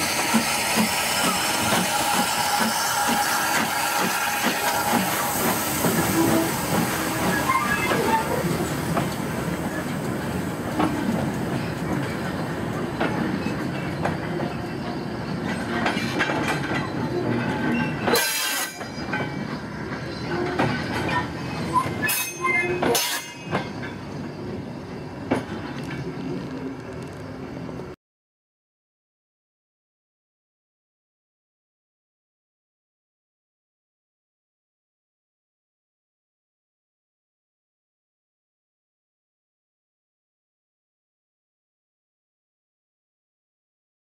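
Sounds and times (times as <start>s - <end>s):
train wheels clacking over rail joints: 0.0s - 24.0s
wheel flange squeals: 5.8s - 8.7s, 13.4s - 25.3s.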